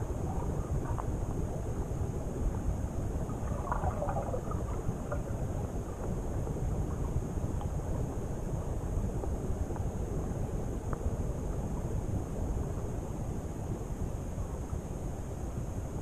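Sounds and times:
faint clicks and crackles: 0.0 - 12.0
muffled underwater rumble: 0.0 - 16.0.

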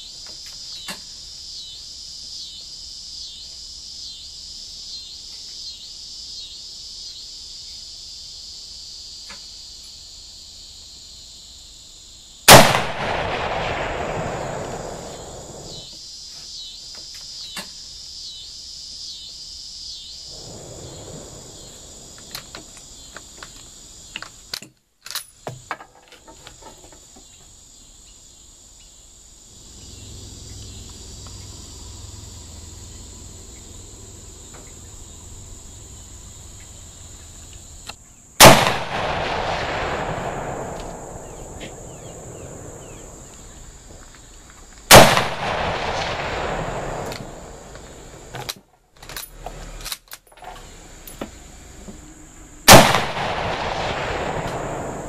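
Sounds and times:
rifle shots: 12.5 - 15.8, 38.4 - 43.2, 44.9 - 47.6, 52.7 - 55.0.

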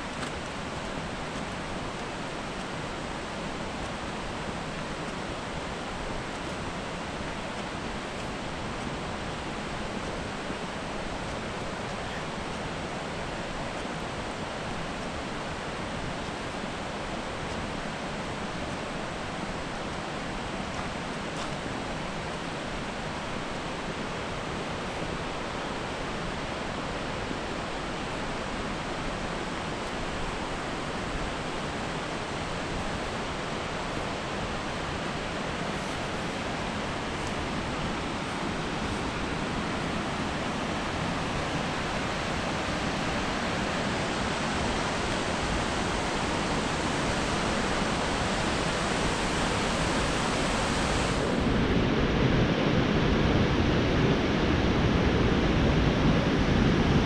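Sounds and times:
creek water flowing: 0.0 - 52.4.

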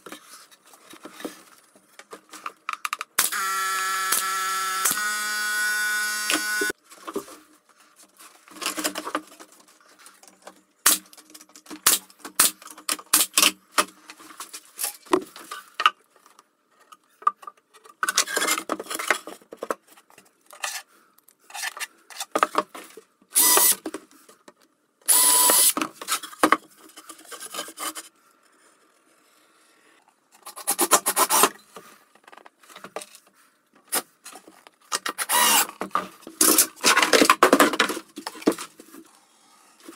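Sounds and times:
cordless drill motor whine: 3.2 - 6.7, 25.1 - 25.7, 35.3 - 35.6.

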